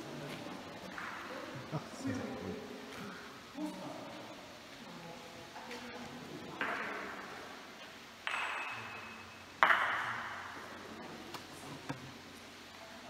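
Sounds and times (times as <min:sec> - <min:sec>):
wooden stick striking ball: 0:08.2 - 0:10.5.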